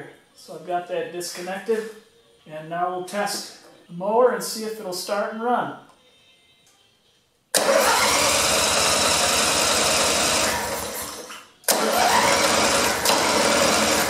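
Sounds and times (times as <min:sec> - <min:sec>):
electric starter cranking engine: 0:07.6 - 0:14.0.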